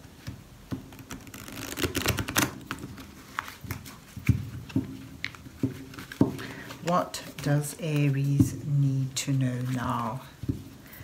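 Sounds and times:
cards riffle-shuffled: 0.9s - 4.4s, 5.2s - 8.3s.

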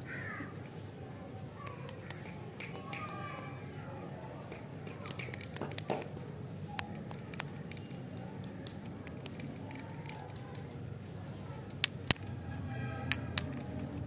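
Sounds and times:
small clicks: 1.6s - 3.6s, 4.2s - 12.3s.

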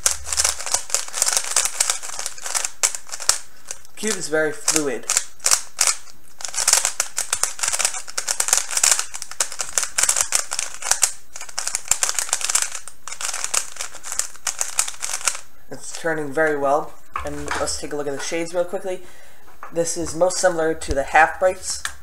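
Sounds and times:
puzzle cube clicking: 0.0s - 15.5s.

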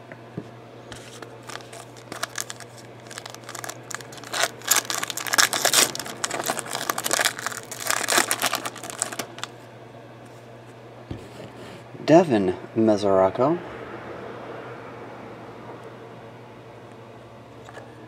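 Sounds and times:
plastic wrapper crinkling and tearing: 1.2s - 9.5s.

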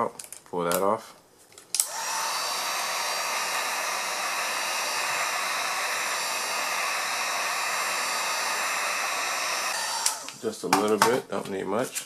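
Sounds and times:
heat gun blowing hot air: 1.8s - 10.4s.

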